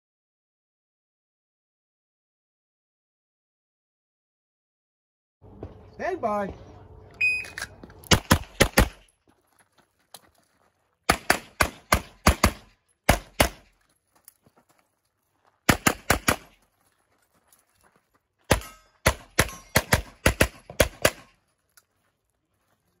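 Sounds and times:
pistol shots: 8.0 - 9.1, 11.1 - 13.7, 15.7 - 16.6, 18.5 - 21.4.

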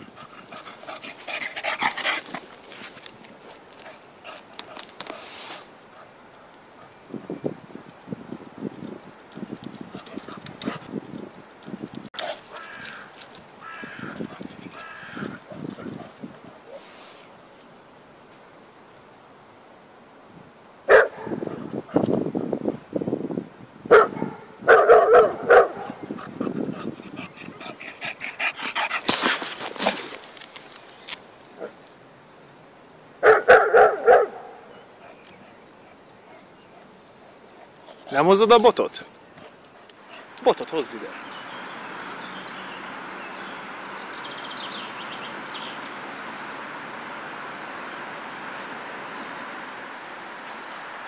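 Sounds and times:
small birds chirping: 0.0 - 17.8, 24.2 - 51.0
outdoor background hiss: 0.0 - 51.0
scuffling noise: 1.0 - 5.7, 28.6 - 31.5
dog barking: 20.9 - 22.0, 23.9 - 26.0, 33.2 - 34.7.

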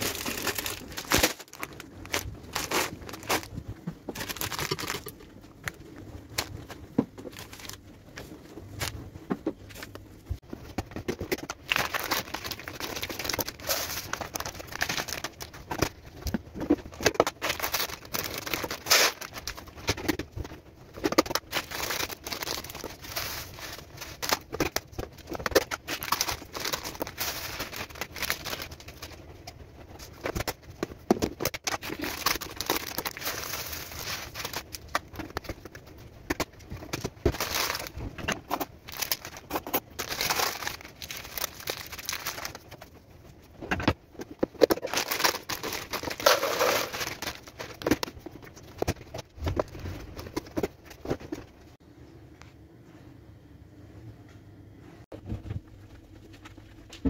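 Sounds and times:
packaging crinkling: 0.0 - 9.0, 10.6 - 43.0, 44.2 - 51.5
lentils and pasta pouring: 21.4 - 24.4, 25.9 - 29.1, 31.8 - 34.8, 44.9 - 47.5.

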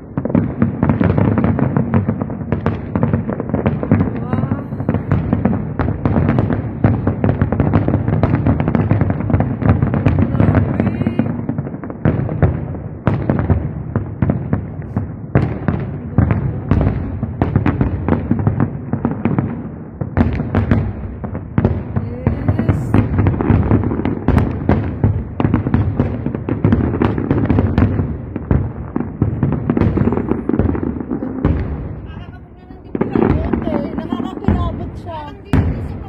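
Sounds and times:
firework shell bursts and crackling: 0.0 - 36.0.

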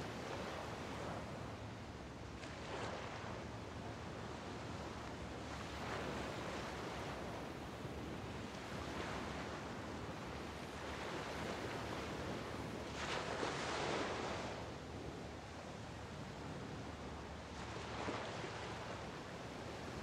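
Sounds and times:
waves washing onto beach: 2.4 - 14.7.

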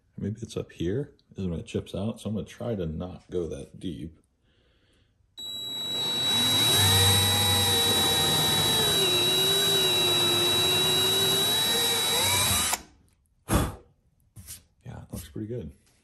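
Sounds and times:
drill motor whine: 5.4 - 12.8.

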